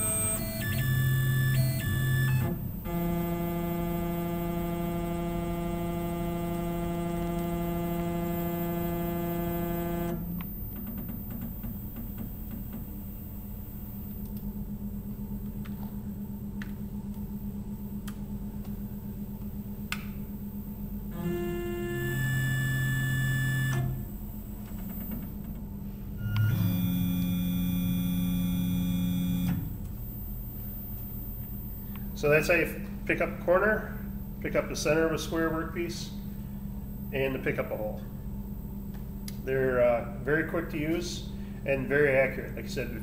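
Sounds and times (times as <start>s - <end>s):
drive motors whining: 0.0s - 17.2s, 20.5s - 32.6s
low steady hum: 0.0s - 43.0s.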